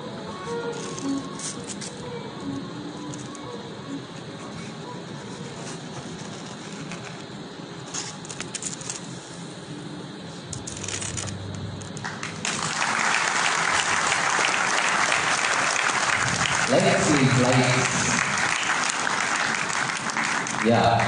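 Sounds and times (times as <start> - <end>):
audience applause: 11.8 - 21.0.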